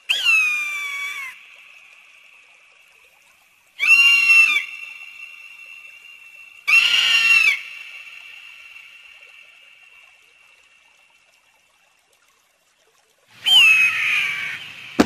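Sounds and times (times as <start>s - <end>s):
eagle screams with echo: 13.4s - 14.8s.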